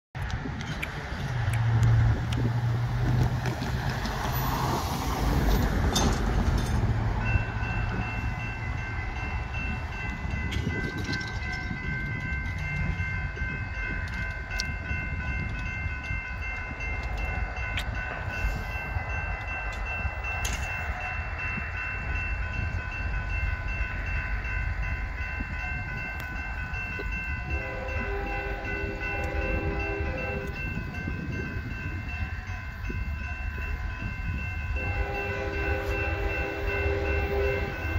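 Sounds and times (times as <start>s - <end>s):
crossing warning bell ringing: 0.6s - 37.9s
train horn: 27.4s - 30.8s, 34.8s - 37.9s.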